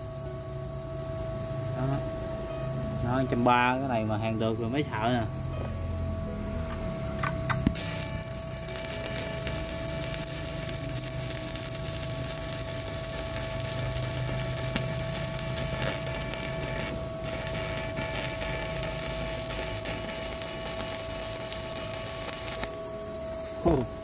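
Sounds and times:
welding arc crackling: 7.2s - 22.8s.

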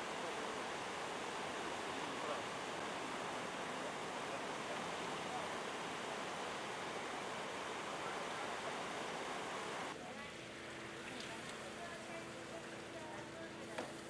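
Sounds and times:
floodwater rushing over an edge: 0.0s - 9.9s.

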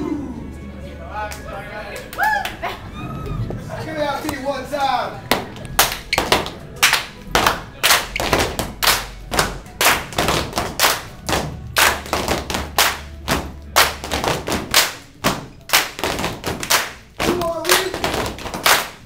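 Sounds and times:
dancers stomping and clapping: 5.3s - 19.0s.

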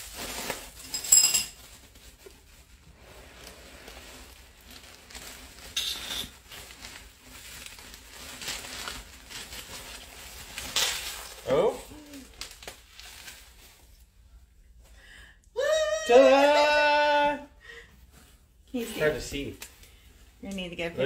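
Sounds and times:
sharp plastic crackle: 0.0s - 1.0s, 1.6s - 13.9s
bubble wrap rustling and crinkling: 0.0s - 14.8s, 15.9s - 21.0s.

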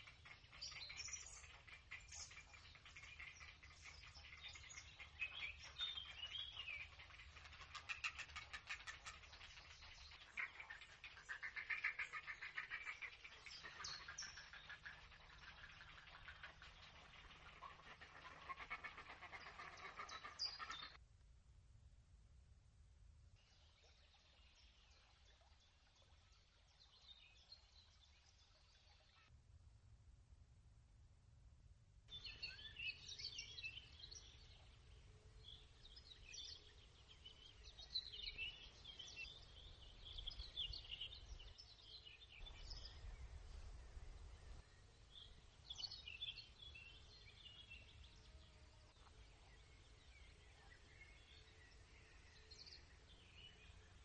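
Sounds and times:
small birds chirping: 0.0s - 21.0s, 32.1s - 54.0s.

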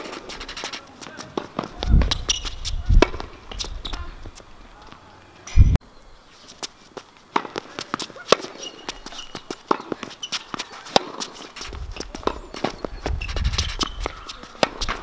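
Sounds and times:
footsteps on hard court: 0.0s - 5.1s, 6.5s - 15.0s
tennis ball bouncing: 1.0s - 5.0s, 7.3s - 15.0s
tennis racquet striking ball: 1.4s - 4.0s, 7.3s - 12.9s, 13.8s - 15.0s
wind rumble on microphone: 1.8s - 4.4s, 5.5s - 5.8s, 11.6s - 14.3s.

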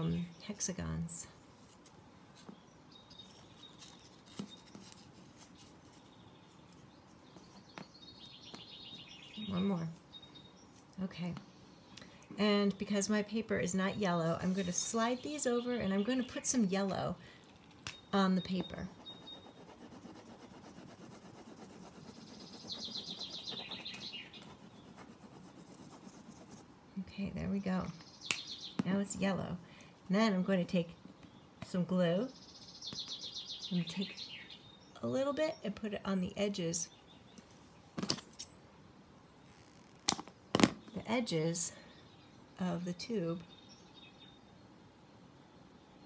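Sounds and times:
marker scribbling on paper: 18.9s - 26.6s.

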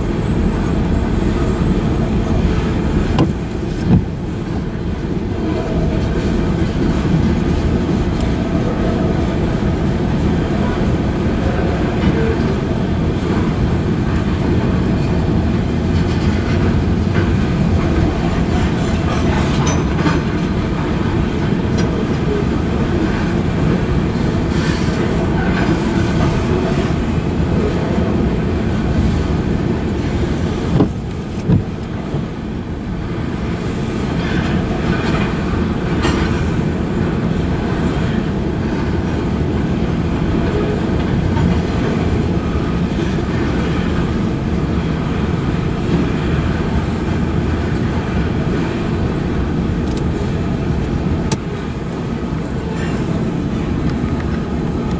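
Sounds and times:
clickety-clack over rail joints: 0.0s - 54.9s
train wheels rumbling on rails: 0.0s - 54.9s.

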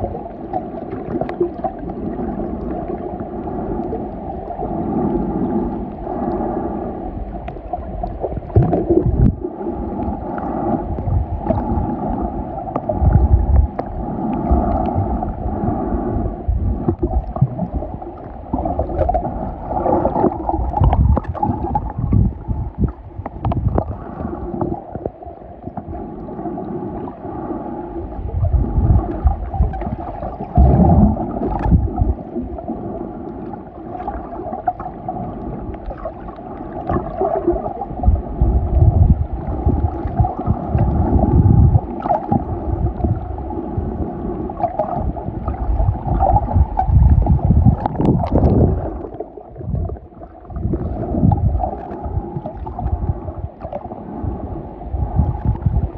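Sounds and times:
underwater gurgling and sloshing: 0.0s - 55.9s
low thumping swells: 10.7s - 24.9s.

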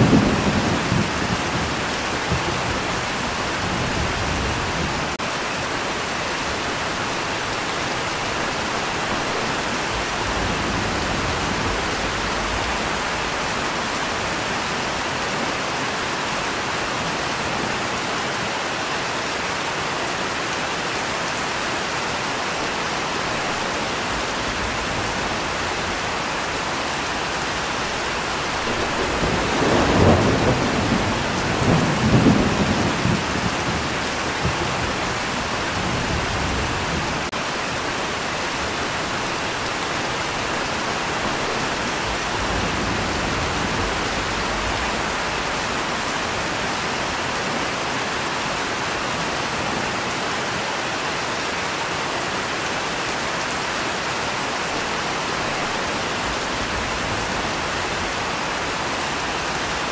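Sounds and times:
thunder rumble: 0.0s - 5.2s, 23.3s - 37.3s
steady rain falling: 0.0s - 59.9s.

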